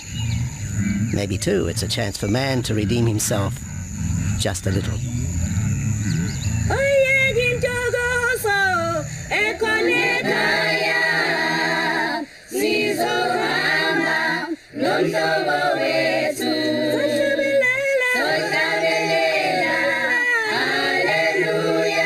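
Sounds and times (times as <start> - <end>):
choir singing a cappella: 6.0 - 22.0.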